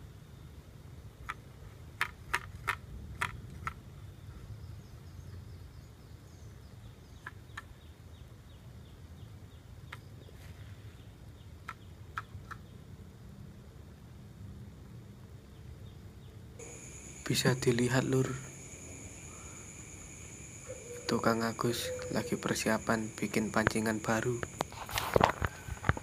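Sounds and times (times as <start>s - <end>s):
faint high bird chirping: 15.5s - 24.8s.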